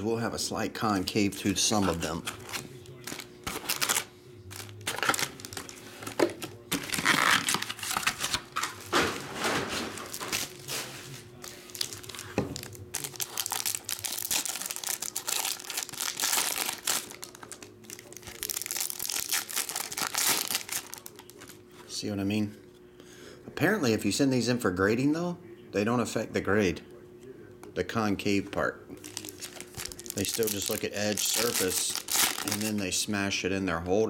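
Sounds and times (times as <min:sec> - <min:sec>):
foil wrappers crinkling and tearing: 0:01.5 - 0:21.6, 0:29.0 - 0:33.1.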